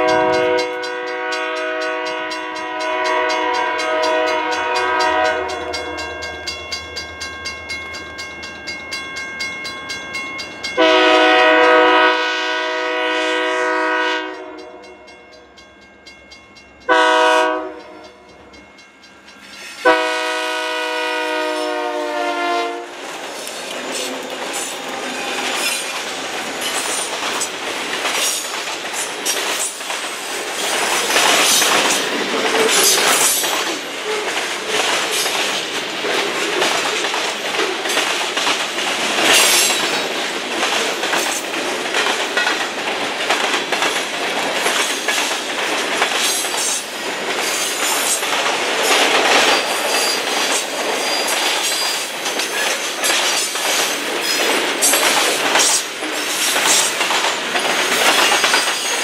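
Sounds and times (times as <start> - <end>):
locomotive air horn: 0.0 - 5.8, 10.8 - 14.8, 16.9 - 18.1, 19.8 - 23.0
train wheels clattering: 23.0 - 59.0.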